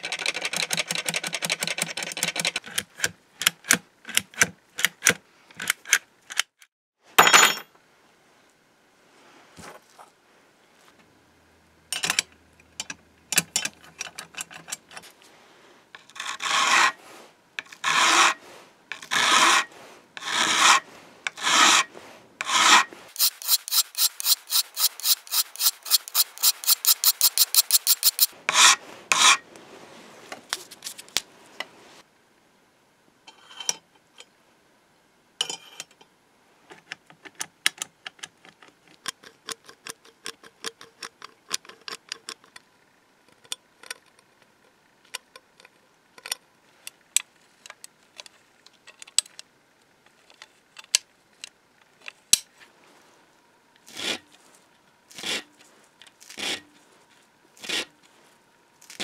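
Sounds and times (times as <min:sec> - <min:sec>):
hand file rasping on steel: 0:16.1 - 0:17.0, 0:17.6 - 0:29.4, 0:53.9 - 0:54.3, 0:55.1 - 0:55.6, 0:56.2 - 0:56.7, 0:57.6 - 0:57.9
light scrapes and ticks: 0:22.4 - 0:29.7.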